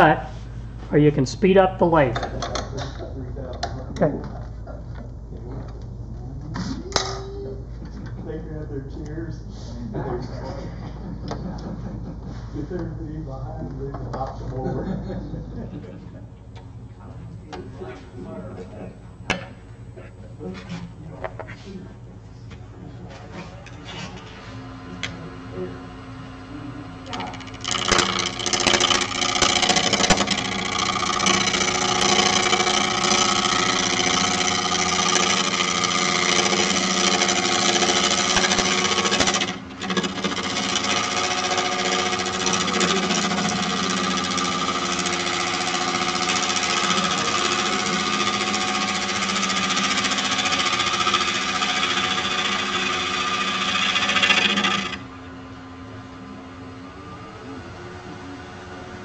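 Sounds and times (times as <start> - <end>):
lathe motor hum: 23.8 - 59.0
gouge cutting wood: 27.1 - 55.0.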